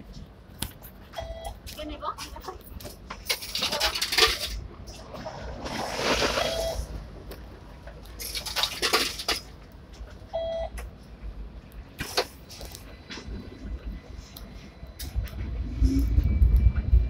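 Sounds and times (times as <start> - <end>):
card reader beeping: 1.2 - 1.6, 6.4 - 6.9, 10.4 - 10.8.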